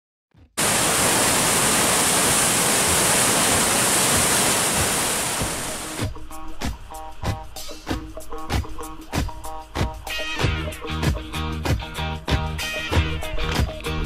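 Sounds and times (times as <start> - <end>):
whitewater rapids rushing: 0.6 - 6.1
music with a beat: 6.0 - 14.0.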